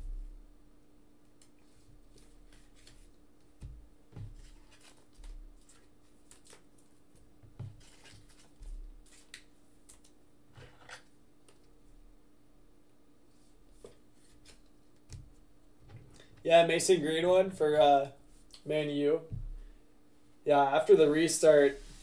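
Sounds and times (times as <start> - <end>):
steady low hum: 0.0 - 4.4
trading cards rustling and clicking: 2.1 - 3.1.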